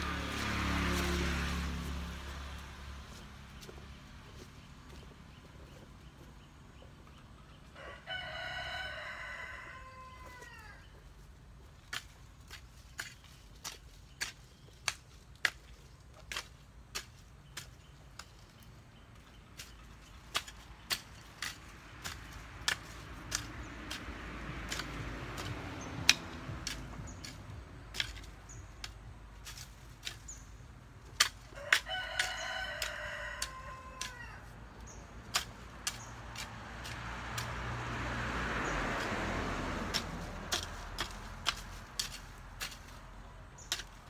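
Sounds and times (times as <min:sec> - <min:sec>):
rooster crowing: 0:07.8 - 0:10.8, 0:31.6 - 0:34.6
hoe chopping into soil: 0:11.8 - 0:37.9, 0:38.8 - 0:44.0.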